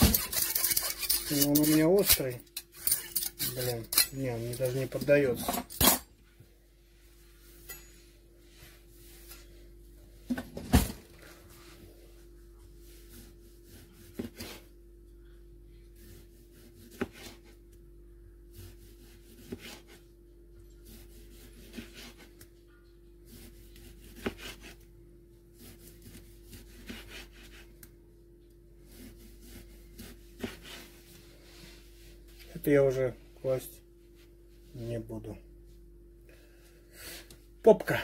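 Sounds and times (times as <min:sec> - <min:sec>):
knife slicing a tomato: 0:13.2 - 0:14.7, 0:16.0 - 0:17.6, 0:18.5 - 0:20.0, 0:20.8 - 0:22.5, 0:23.2 - 0:24.8, 0:25.6 - 0:27.9, 0:28.8 - 0:30.9.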